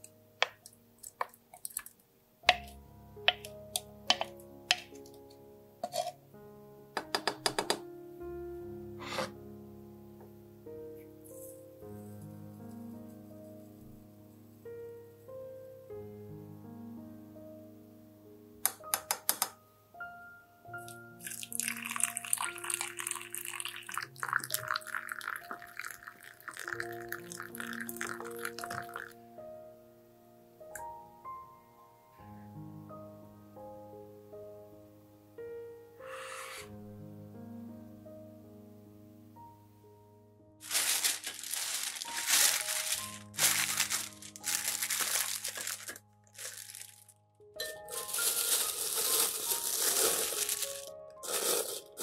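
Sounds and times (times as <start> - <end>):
soft piano background music: 0.0 - 52.0
plastic bag crinkling: 21.2 - 25.3, 40.6 - 52.0
hot water pouring into teapot: 21.2 - 29.1.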